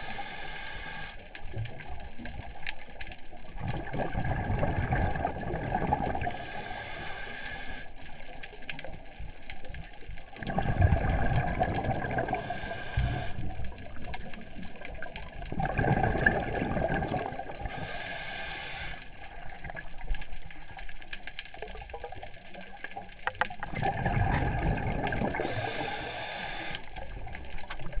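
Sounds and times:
regulator inhalation hiss: 0:00.0 - 0:01.2, 0:06.3 - 0:07.9, 0:12.3 - 0:13.5, 0:17.6 - 0:19.2, 0:25.4 - 0:26.9
underwater exhaled air bubbling: 0:03.2 - 0:20.9, 0:21.5 - 0:28.0.

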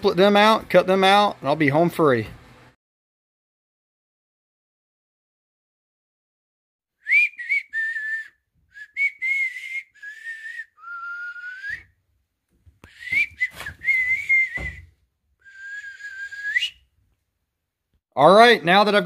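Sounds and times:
person whistling a tune: 0:07.0 - 0:11.9, 0:12.9 - 0:16.8.

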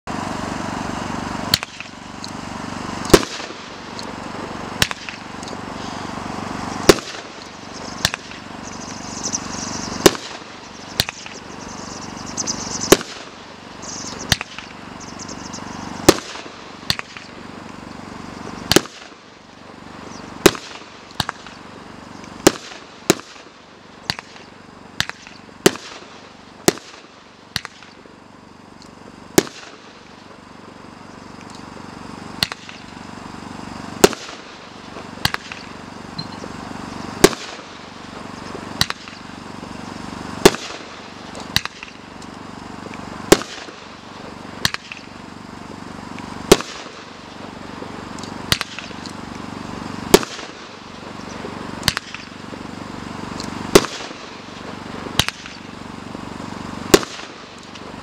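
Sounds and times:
fireworks banging: 0:00.1 - 0:58.0.

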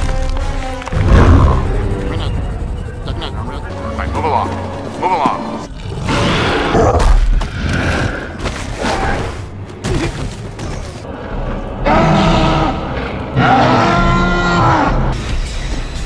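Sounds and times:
person imitating ape calls: 0:03.0 - 0:05.5.

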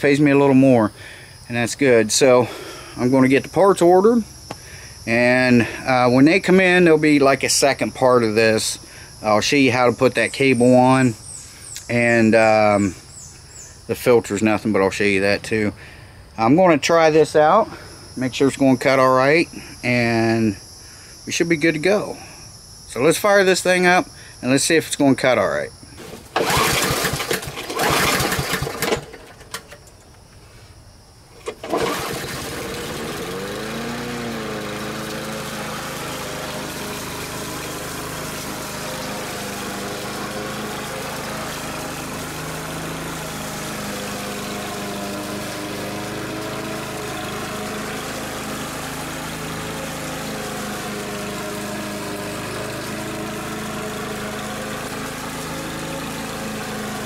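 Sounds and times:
lawn mower engine running: 0:00.0 - 0:15.6, 0:26.0 - 0:30.0, 0:31.4 - 0:57.0
recoil starter pull: 0:26.0 - 0:30.0, 0:31.4 - 0:57.0.

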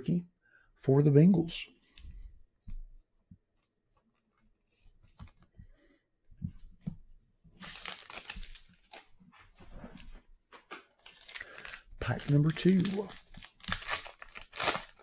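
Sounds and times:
foil wrapper crackling: 0:07.6 - 0:09.1, 0:11.0 - 0:15.0.

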